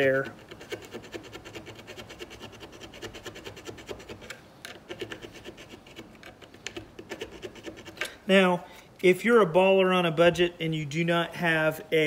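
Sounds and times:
file rasping against metal: 0:00.0 - 0:08.1.

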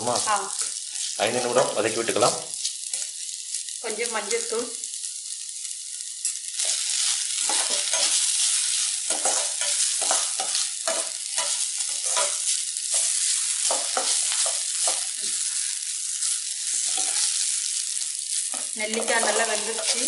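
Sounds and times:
food sizzling in oil: 0:00.0 - 0:20.0.

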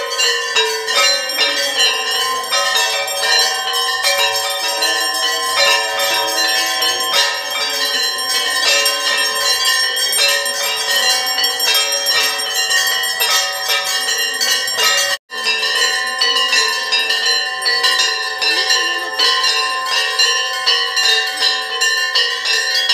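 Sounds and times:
temple bells clanging: 0:00.0 - 0:22.9.

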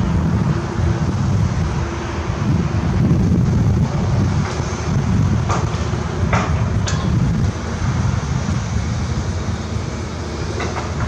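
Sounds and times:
excavator diesel rumble: 0:00.0 - 0:11.0
wind buffeting microphone: 0:00.0 - 0:11.0.

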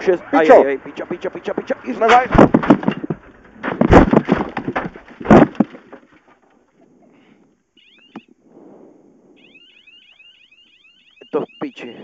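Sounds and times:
car scraping and rattling: 0:00.0 - 0:06.4
car crashing impact: 0:01.6 - 0:06.2
electronic chirping alarm: 0:07.8 - 0:08.4, 0:09.3 - 0:12.0.

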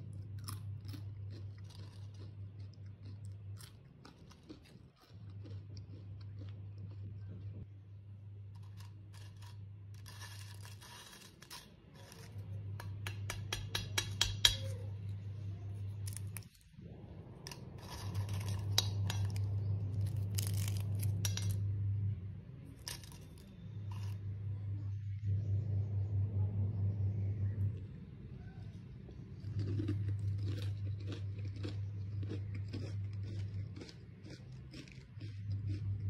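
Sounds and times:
chips crackling and crunching: 0:00.0 - 0:07.6, 0:08.5 - 0:14.7, 0:15.8 - 0:16.7, 0:17.4 - 0:21.7, 0:22.6 - 0:24.3, 0:28.9 - 0:36.0
low hum: 0:00.0 - 0:36.0.

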